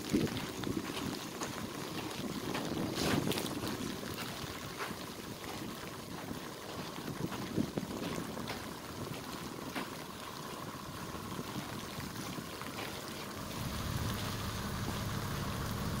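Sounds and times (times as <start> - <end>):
wind on microphone: 0.0 - 9.8
low vehicle engine hum: 13.3 - 16.0.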